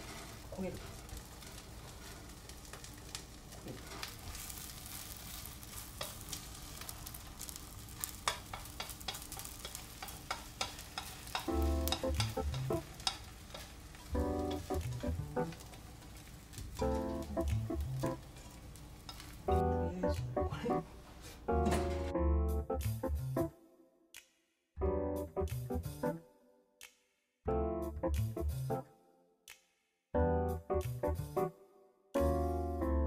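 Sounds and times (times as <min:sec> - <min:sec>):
egg sizzling in frying pan: 0:00.0 - 0:19.7
utensil scraping pan: 0:08.0 - 0:15.7
music: 0:11.5 - 0:12.9, 0:14.1 - 0:15.6, 0:16.8 - 0:18.2, 0:19.5 - 0:29.6, 0:30.2 - 0:33.0.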